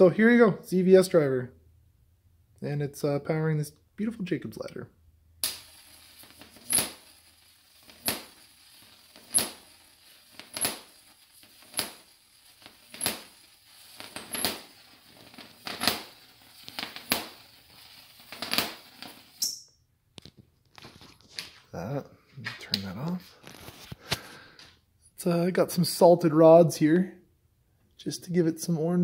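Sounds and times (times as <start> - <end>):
electric arc buzzing and crackling: 5.4 - 19.5
sharp arc cracks: 5.4 - 19.5.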